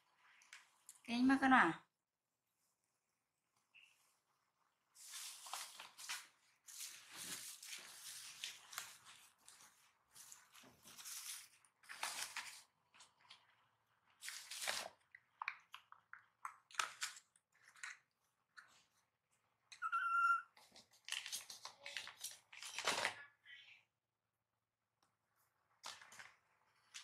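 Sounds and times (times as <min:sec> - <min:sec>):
baby monkey squeaky call: 0:19.8 - 0:20.5.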